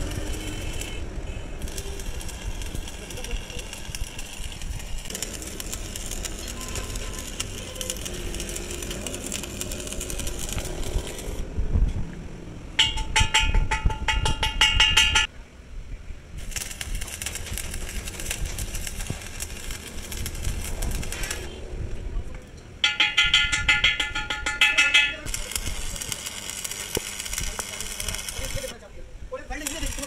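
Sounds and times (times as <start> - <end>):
arc welding crackling sizzle: 0.0 - 11.4, 16.4 - 21.6, 25.2 - 30.0
ringing metal strikes: 12.8 - 15.3, 22.8 - 25.3.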